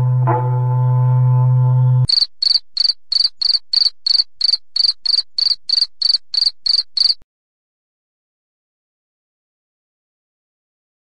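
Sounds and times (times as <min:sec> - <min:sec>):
low held musical note: 0:00.0 - 0:02.1
crickets chirping: 0:02.1 - 0:07.2.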